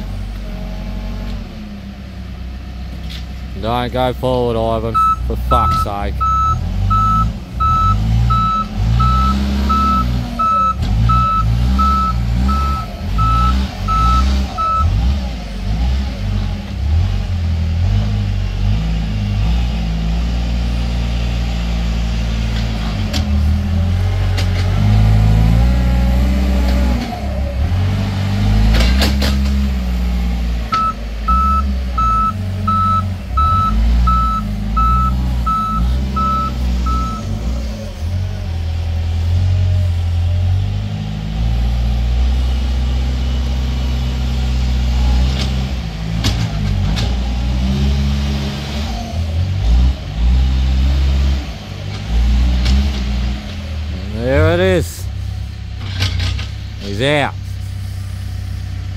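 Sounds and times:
diesel engine revving: 0.0s - 58.9s
reversing alarm beeping: 4.9s - 15.0s, 30.8s - 37.4s.

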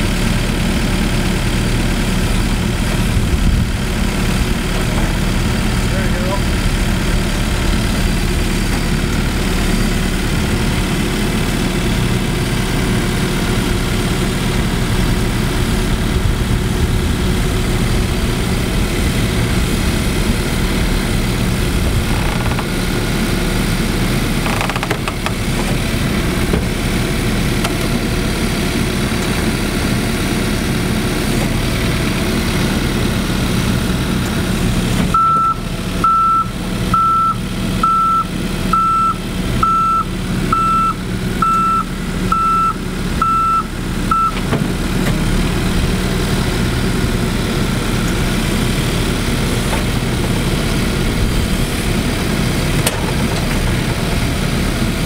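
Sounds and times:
diesel engine running: 0.0s - 55.0s
reversing alarm beeps: 35.2s - 44.4s.

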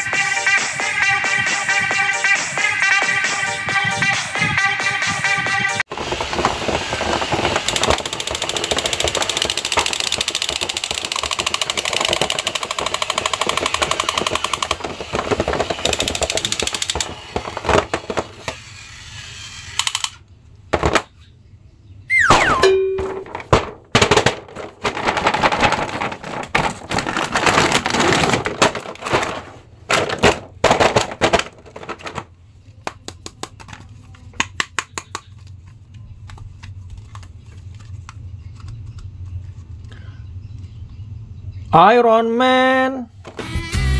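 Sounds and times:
toy machine-gun sound effect: 7.7s - 17.3s, 18.4s - 20.2s
short falling electronic tone: 22.1s - 23.2s.

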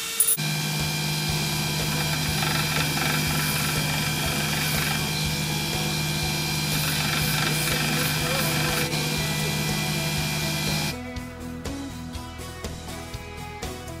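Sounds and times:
bench grinder motor hum: 0.2s - 11.0s.

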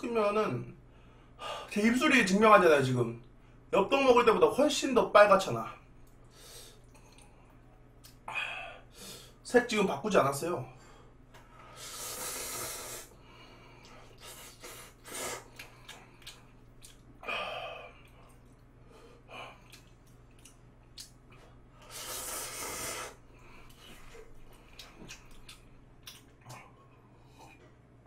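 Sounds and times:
person slurping noodles: 11.8s - 13.1s, 14.0s - 15.6s, 21.8s - 23.2s
wet chewing clicks: 13.8s - 17.2s, 17.9s - 18.8s, 19.5s - 22.3s, 23.6s - 27.6s.

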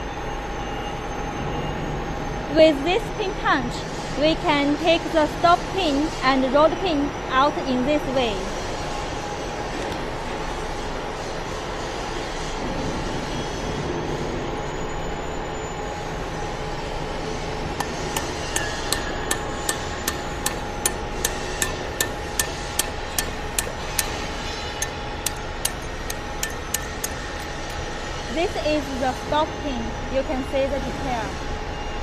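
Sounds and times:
background hum: 13.6s - 32.0s
hammer tapping metal punch: 17.8s - 27.8s.

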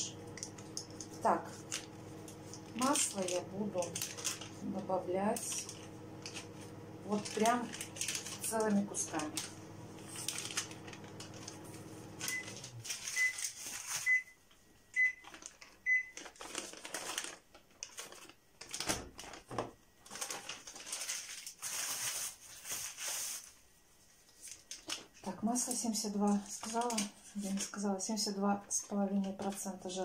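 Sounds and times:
low steady hum: 0.0s - 13.4s
appliance beeping: 0.0s - 16.2s
paper wrappers rustling: 0.0s - 30.0s.

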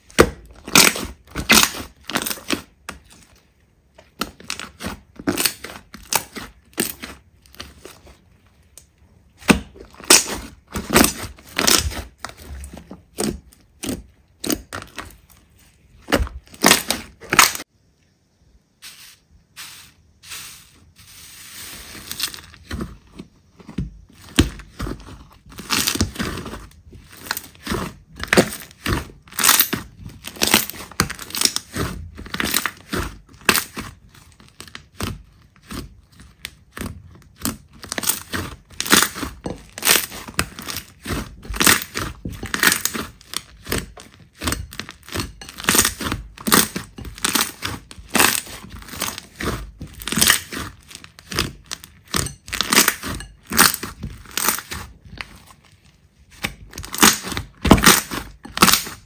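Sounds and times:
slime crackling and squelching: 0.0s - 17.7s, 18.8s - 59.0s.

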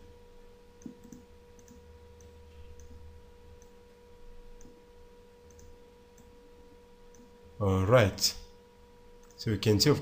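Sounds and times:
low electrical hum: 0.0s - 10.0s
computer mouse clicks: 0.8s - 3.0s, 4.6s - 4.8s, 5.5s - 6.3s.

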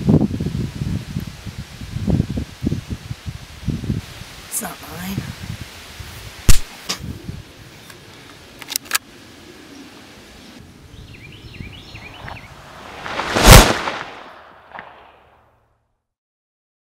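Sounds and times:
birds chirping: 9.3s - 13.2s
gunshot blast: 12.7s - 15.3s.

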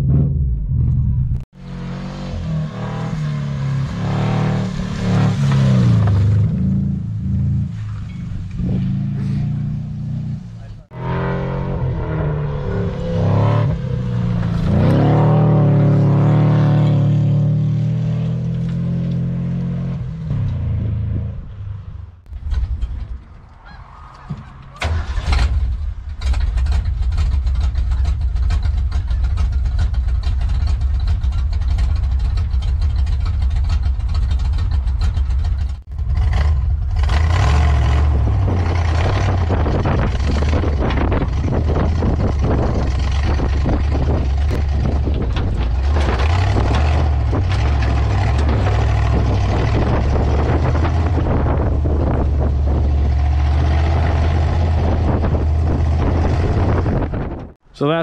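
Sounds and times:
car engine revving: 0.0s - 23.3s, 24.2s - 57.6s
off-road vehicle engine running: 0.0s - 58.0s
loose body rattling and knocking: 39.9s - 51.4s.

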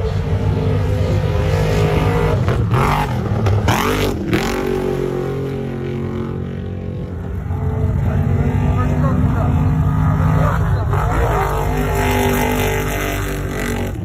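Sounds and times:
truck engines revving: 0.0s - 14.0s.

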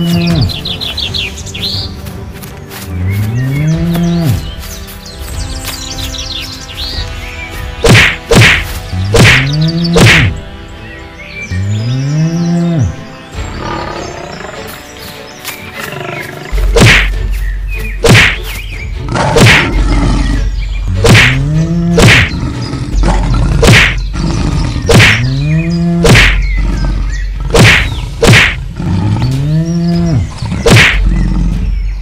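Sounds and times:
cartoon blows whacking: 7.8s - 8.6s, 9.2s - 10.4s, 16.8s - 17.1s, 18.1s - 18.4s, 19.4s - 19.7s, 21.0s - 21.4s, 22.0s - 22.3s, 23.6s - 24.0s, 27.6s - 28.6s.

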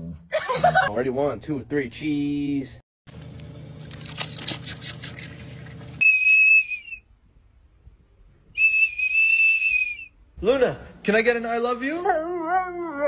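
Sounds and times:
shrill plastic whistle tone: 6.0s - 7.1s, 8.6s - 10.2s.

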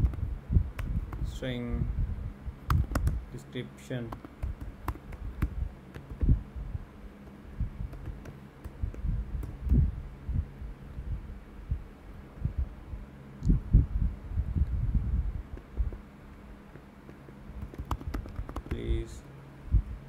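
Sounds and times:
keyboard typing thumps: 0.0s - 0.2s, 0.8s - 1.3s, 2.7s - 3.2s, 4.1s - 6.4s, 7.2s - 9.8s, 16.7s - 19.0s
low electrical hum: 0.0s - 20.0s.

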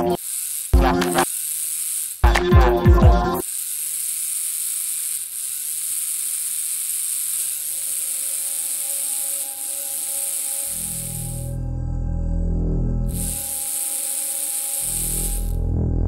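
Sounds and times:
faint low electric buzz: 0.0s - 16.0s
steady high hiss: 6.2s - 11.6s, 13.1s - 15.6s.

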